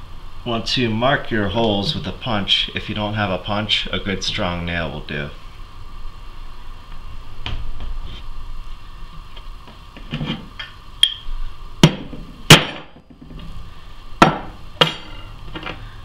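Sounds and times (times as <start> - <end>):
hammer striking metal punch: 14.2 - 15.2.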